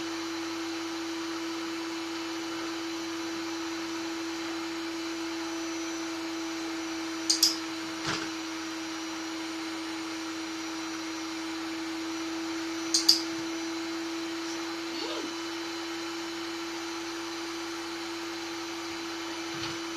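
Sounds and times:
vacuum cleaner humming: 0.0s - 19.9s
sharp double clicks: 7.3s - 7.6s, 12.9s - 13.3s.

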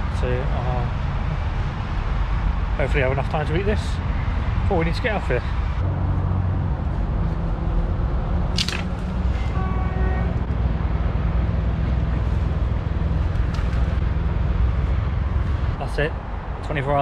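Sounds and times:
road traffic rumble: 0.0s - 17.0s
dry sticks cracking: 8.5s - 9.2s.

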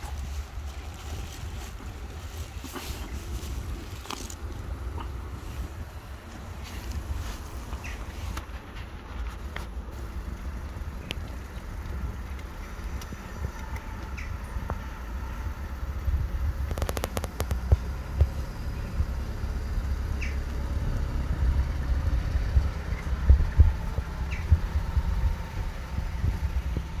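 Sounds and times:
low outdoor rumble: 0.0s - 27.0s
sharp clicks: 16.6s - 18.4s
low thumps: 22.0s - 27.0s.

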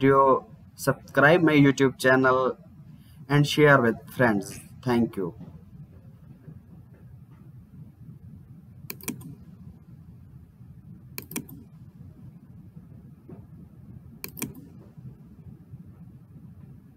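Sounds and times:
low background hum: 0.0s - 16.9s
computer mouse clicks: 8.9s - 9.5s, 11.2s - 11.7s, 14.2s - 14.8s.

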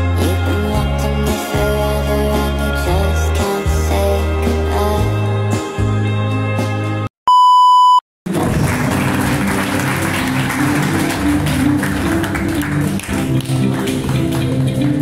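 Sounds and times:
background music: 0.0s - 7.1s, 8.3s - 15.0s
loud electronic beep: 7.3s - 8.0s.

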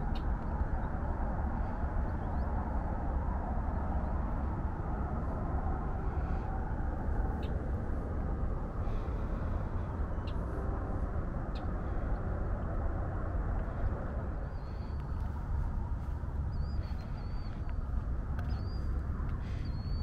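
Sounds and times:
highway traffic drone: 0.0s - 20.0s
wavering high bird chirps: 16.0s - 20.0s.

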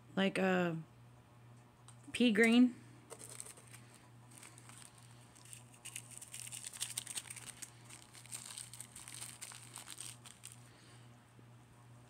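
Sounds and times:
plastic bags crinkling: 3.1s - 10.7s.

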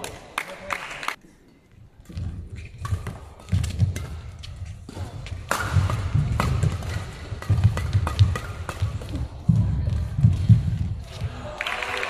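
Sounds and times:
rackets hitting shuttlecock: 2.0s - 11.3s.

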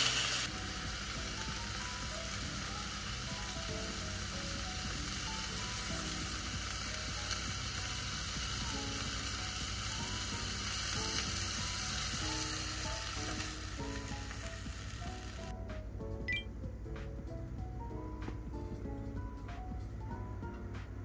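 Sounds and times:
meat sizzling in oil: 0.0s - 15.5s.

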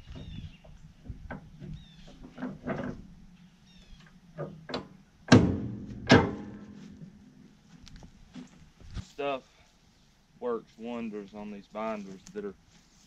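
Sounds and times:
loud metallic clanks: 4.7s - 6.8s.

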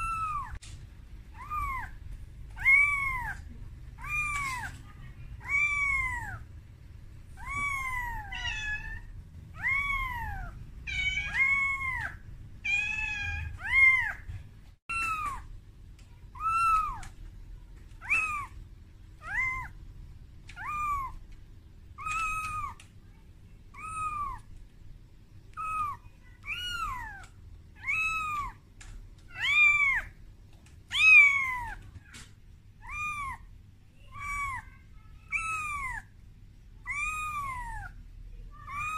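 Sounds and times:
kitten mewing: 0.0s - 0.6s, 1.3s - 2.0s, 2.6s - 6.5s, 7.4s - 14.3s, 17.9s - 18.6s, 19.2s - 19.8s, 20.5s - 21.2s, 21.9s - 22.9s, 23.7s - 24.5s, 25.5s - 28.6s, 30.9s - 32.2s, 32.8s - 33.5s, 34.1s - 36.1s, 36.8s - 38.0s, 38.6s - 38.9s.

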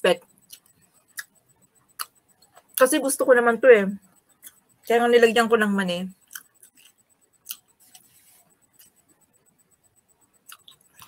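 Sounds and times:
soft mouth clicks chewing: 0.5s - 1.4s, 2.0s - 2.6s, 6.3s - 8.2s, 10.5s - 11.0s.

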